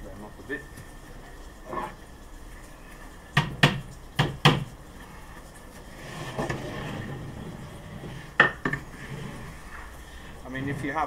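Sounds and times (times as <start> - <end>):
sharp wooden knocks: 3.4 - 4.7
plywood panels scraping: 3.6 - 11.0.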